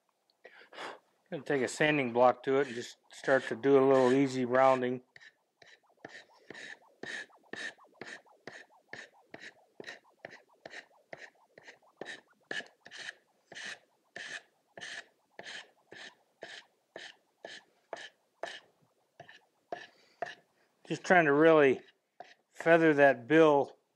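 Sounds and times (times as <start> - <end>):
sanding block rubbing wood: 2.6 - 18.6.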